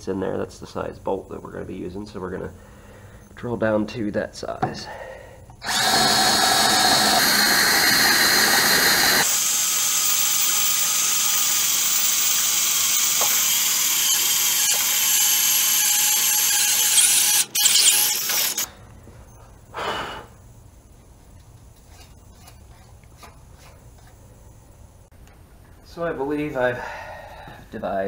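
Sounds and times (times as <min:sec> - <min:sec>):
cordless drill cutting sheet steel: 0:05.6 - 0:18.7.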